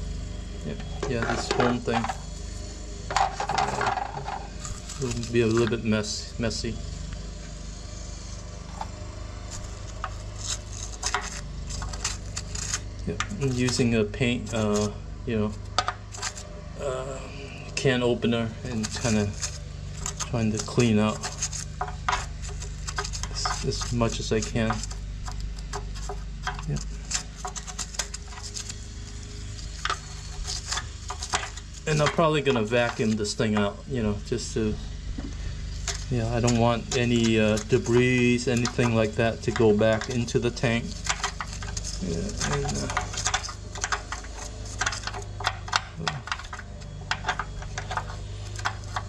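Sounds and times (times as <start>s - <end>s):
steady low hum: 0.0s - 49.0s
metal tool scraping foam: 3.2s - 5.7s, 9.5s - 16.5s, 18.3s - 34.8s, 35.4s - 49.0s.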